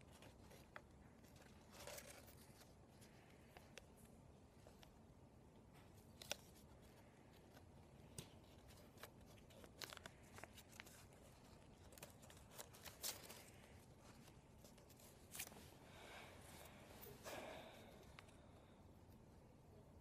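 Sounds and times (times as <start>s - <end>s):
paper crinkling and rustling: 0.0s - 5.0s, 5.7s - 15.8s.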